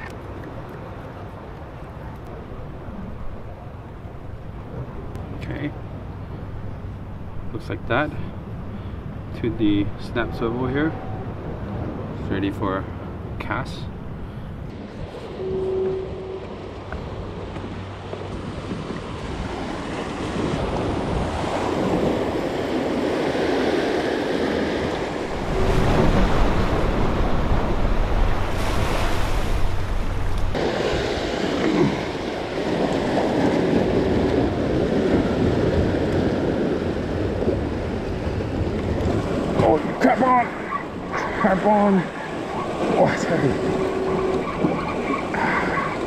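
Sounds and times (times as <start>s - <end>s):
wind buffeting microphone: 12.9s - 46.0s
surf breaking over rocks: 18.6s - 40.6s.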